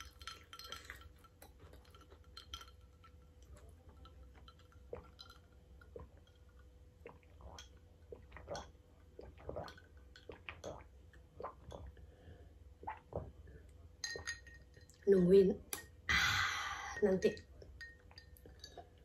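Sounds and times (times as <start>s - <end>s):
faint steady hum: 0.0s - 19.0s
sipping and swallowing: 3.4s - 12.2s, 12.8s - 14.2s.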